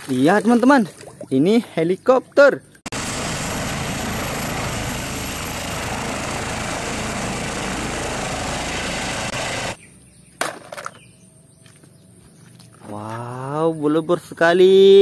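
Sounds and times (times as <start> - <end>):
helicopter turbine and rotor: 2.9 - 9.8.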